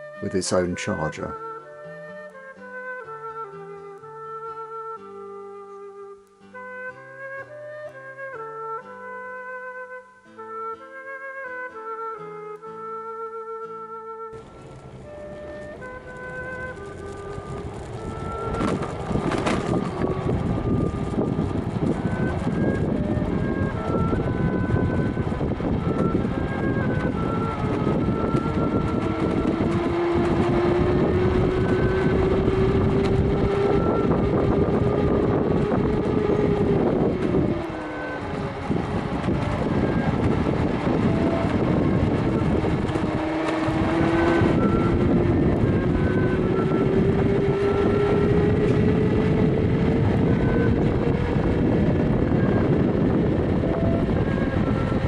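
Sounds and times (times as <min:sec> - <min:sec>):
road noise: 0:00.0 - 0:05.4, 0:14.2 - 0:55.0
electric motor whining: 0:14.3 - 0:55.0.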